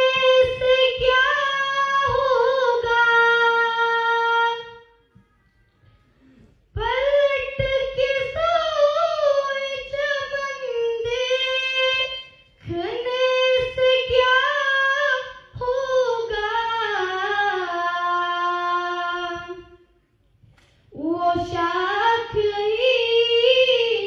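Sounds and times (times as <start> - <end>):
person singing unaccompanied: 0.0 - 4.9, 6.7 - 19.8.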